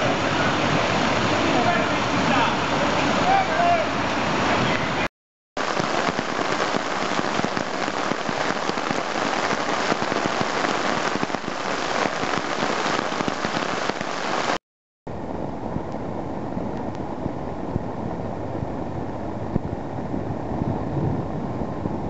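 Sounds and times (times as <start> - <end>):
heavy rain on brick pavement: 0.0 - 14.6
water spattering from roof edge: 5.6 - 14.6.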